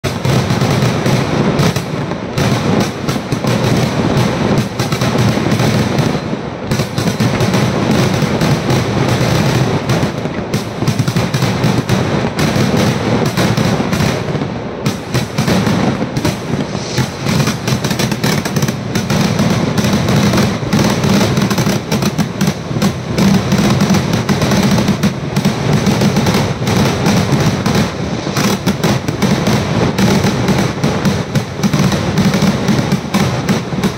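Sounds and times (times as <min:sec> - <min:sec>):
fireworks bangs and crackling: 0:00.0 - 0:33.9
shells bursting: 0:00.0 - 0:33.9
low rumble: 0:16.1 - 0:18.2.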